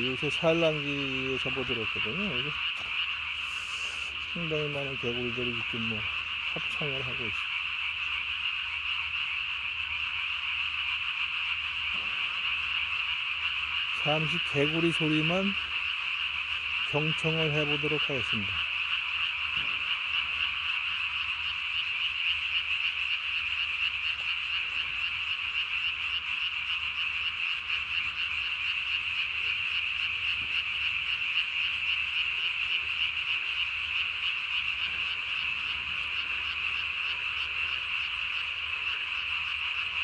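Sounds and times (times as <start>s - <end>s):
chorus of frogs calling: 0.0s - 40.0s.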